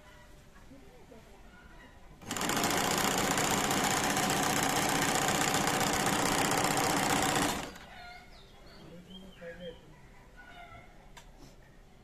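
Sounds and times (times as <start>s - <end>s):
sewing machine stitching: 2.2s - 7.9s.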